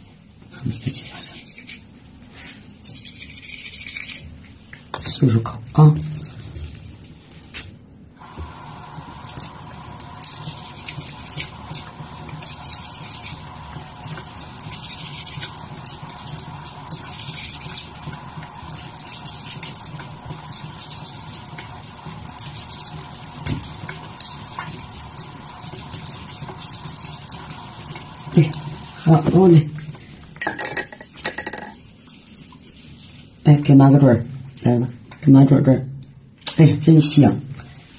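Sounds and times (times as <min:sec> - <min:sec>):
background hum: 0:00.0 - 0:36.6
toothbrush scrubbing teeth: 0:00.6 - 0:04.9, 0:08.2 - 0:30.2.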